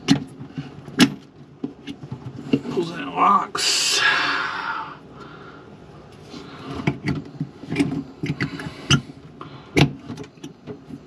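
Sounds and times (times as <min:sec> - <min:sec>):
plastic fitting clicks and knocks: 0:00.0 - 0:02.6.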